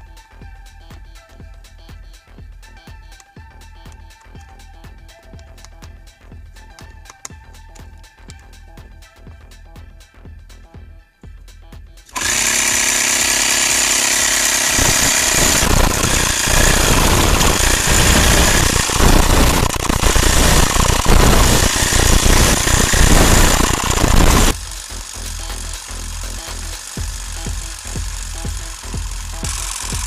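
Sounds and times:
small air compressor running: 12.1 - 30.0.

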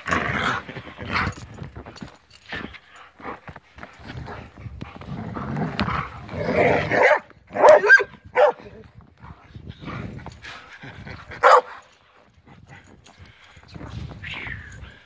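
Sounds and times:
dog barking: 6.9 - 8.7, 11.4 - 11.8.

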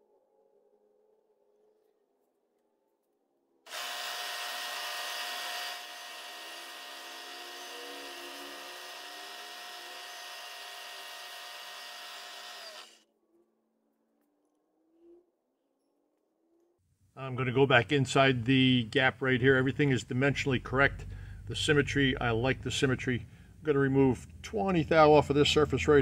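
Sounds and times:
milling machine cutting metal: 3.7 - 13.0.

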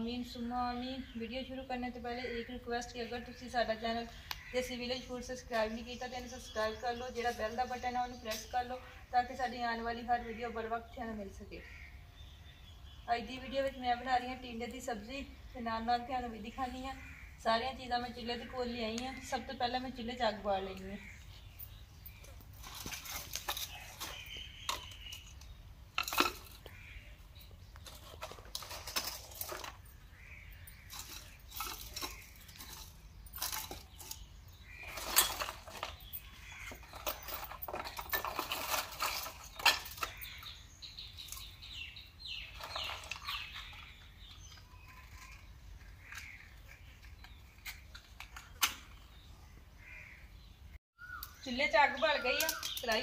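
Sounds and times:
wooden sticks clattering: 22.1 - 26.8, 27.8 - 30.0, 30.7 - 40.6, 42.4 - 49.1.

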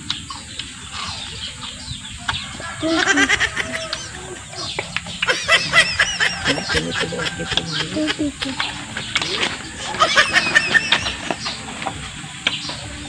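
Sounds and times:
chewing crisp fruit: 0.0 - 10.1
poultry clucking and chirping: 0.0 - 13.0.

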